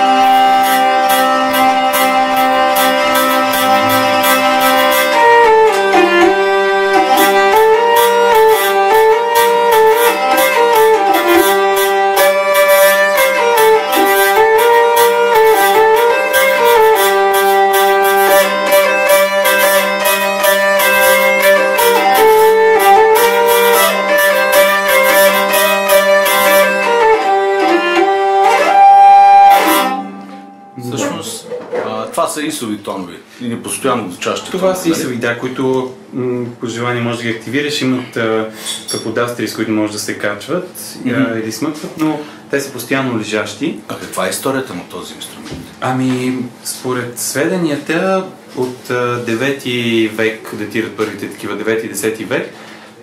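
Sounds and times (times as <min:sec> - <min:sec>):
hurdy-gurdy melody over drone: 0:00.0 - 0:31.1
rhythmic buzzing bridge: 0:00.0 - 0:31.6.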